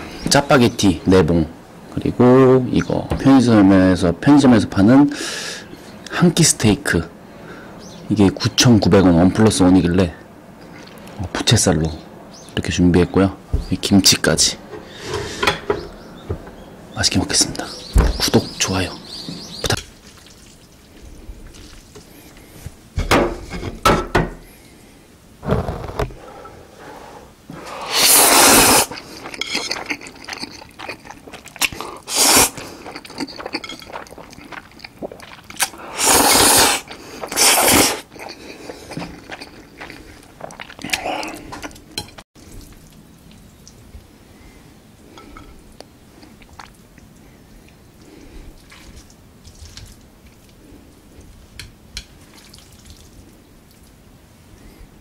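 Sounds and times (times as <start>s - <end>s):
wet noodle slurps: 27.8s - 29.2s, 32.0s - 33.2s, 35.0s - 41.0s
smacking chewing: 28.8s - 43.9s.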